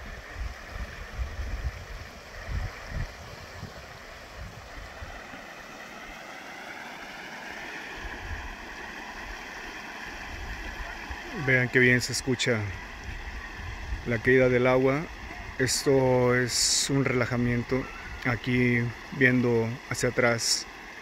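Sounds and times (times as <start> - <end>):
wind rumbling on microphone: 0.0 - 5.3, 8.0 - 8.7, 10.2 - 16.7
waterfall rushing: 0.0 - 21.0.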